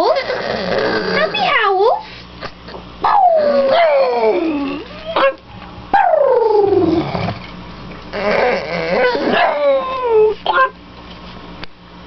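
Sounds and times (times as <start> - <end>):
dog howling: 3.0 - 7.3, 8.2 - 10.7.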